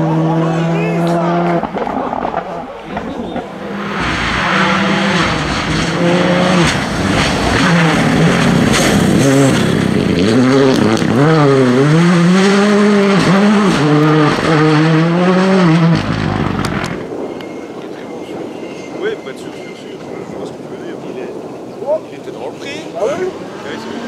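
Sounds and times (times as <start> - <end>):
rally car engine revving: 0.0 - 17.0, 23.0 - 24.0.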